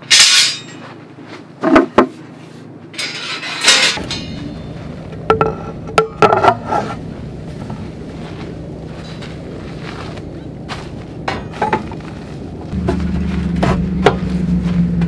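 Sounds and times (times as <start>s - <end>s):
metal frame clinking: 0.0s - 0.8s, 3.0s - 8.2s.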